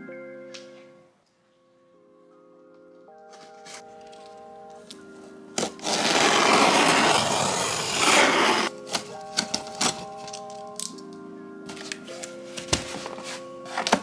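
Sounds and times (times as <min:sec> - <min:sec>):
soft background music: 0:00.0 - 0:14.0
box cutter slicing tape: 0:05.6 - 0:10.0.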